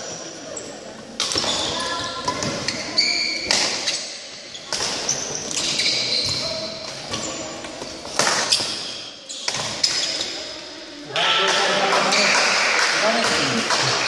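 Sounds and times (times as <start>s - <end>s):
court shoes squeaking: 0.5s - 10.8s.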